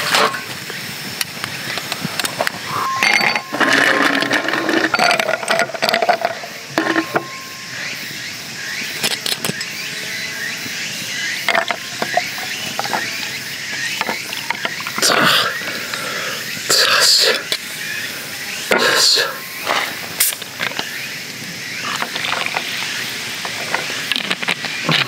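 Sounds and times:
ice cubes clinking in a glass: 0:02.7 - 0:07.5.

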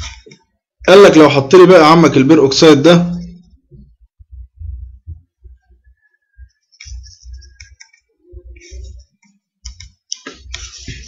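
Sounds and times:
low thumps: 0:03.6 - 0:05.6
scratchy rubbing: 0:06.5 - 0:09.2, 0:10.2 - 0:11.0
computer mouse clicking: 0:06.8 - 0:08.1.

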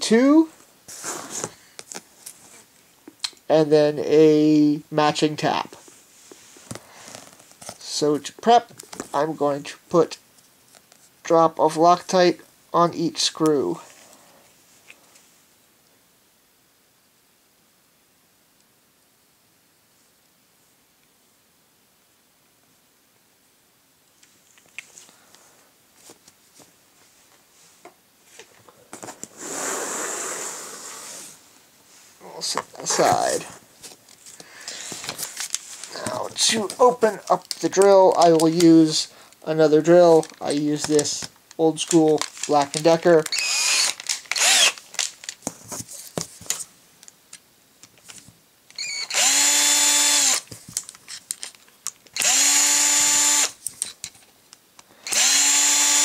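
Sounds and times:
notebook sliding on cardboard: 0:00.9 - 0:01.6
light clicks and handling noise: 0:24.1 - 0:25.4, 0:32.4 - 0:39.4, 0:40.0 - 0:43.3, 0:50.5 - 0:52.1
drill whine: 0:43.3 - 0:44.8, 0:48.8 - 0:50.4, 0:52.2 - 0:53.6, 0:55.0 - 0:56.0.

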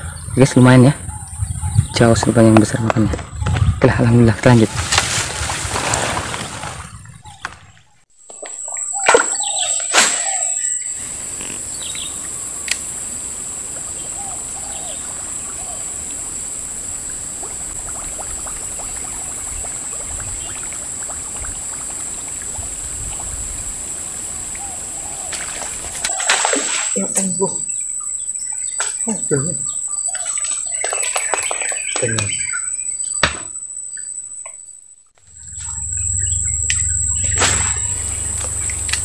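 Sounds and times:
faint bird chirps: 0:06.8 - 0:12.4, 0:24.5 - 0:38.9
sharp knocks: 0:33.2 - 0:33.6.

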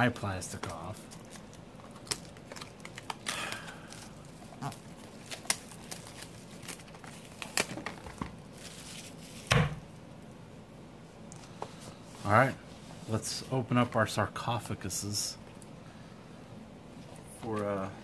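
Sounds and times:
shrink wrap tearing and crinkling: 0:00.4 - 0:09.6.

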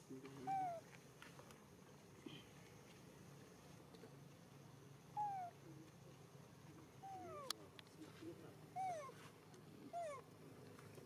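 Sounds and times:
baby monkey crying: 0:00.5 - 0:00.8.

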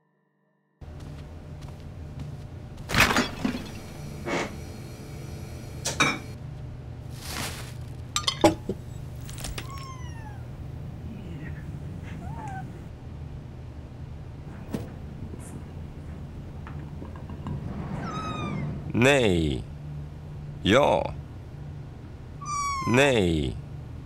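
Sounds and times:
low steady hum: 0:00.8 - 0:24.0
household knocks and clinks: 0:08.2 - 0:09.7
kitten mewing: 0:09.6 - 0:12.9, 0:22.4 - 0:23.6.

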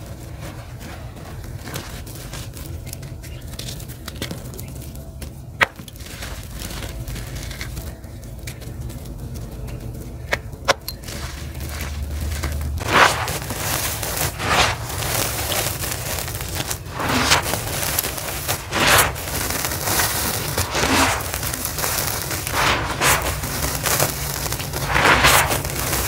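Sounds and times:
charcoal dust crunching: 0:00.0 - 0:26.0
grains pouring onto floor: 0:11.0 - 0:26.0.

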